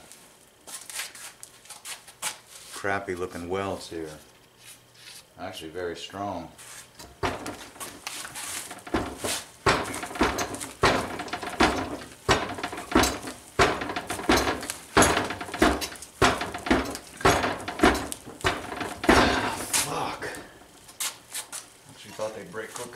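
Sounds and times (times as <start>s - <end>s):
metal plate clacking: 8.7s - 19.9s.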